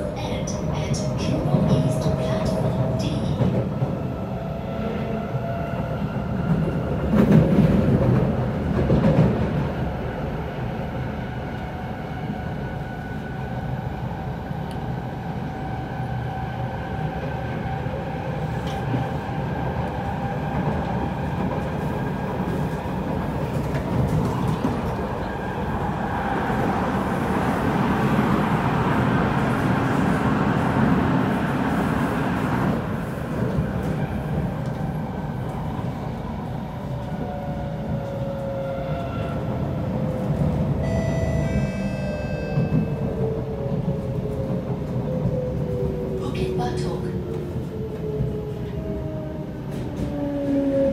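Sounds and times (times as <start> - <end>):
train wheels rumbling on rails: 0.0 - 50.9.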